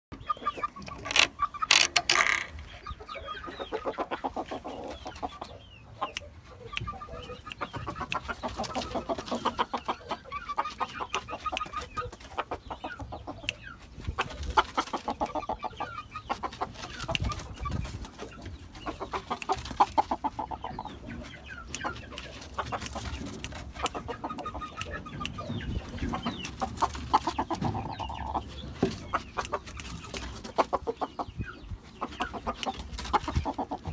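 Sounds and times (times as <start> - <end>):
cockerel clucking: 0.1 - 33.9.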